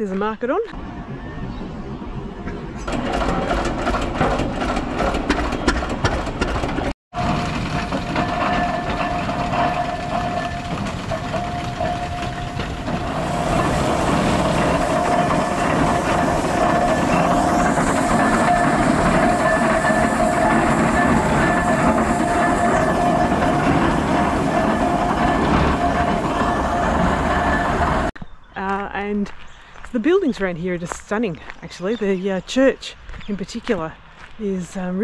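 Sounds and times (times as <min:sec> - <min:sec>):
steam engine knocks and clanks: 0:02.8 - 0:28.1.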